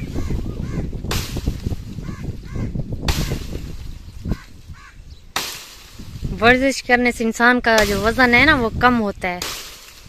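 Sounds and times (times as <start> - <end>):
bird calls: 0.0 - 1.0, 1.9 - 5.4
axe chopping branches: 1.0 - 2.0, 3.0 - 4.6, 5.3 - 6.6, 7.6 - 10.0.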